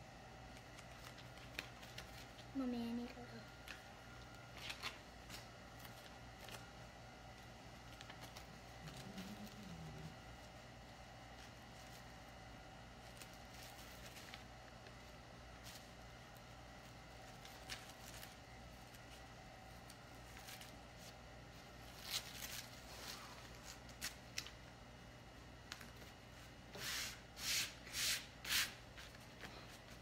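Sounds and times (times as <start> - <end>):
plastic sheet crinkling: 4.3 - 24.7.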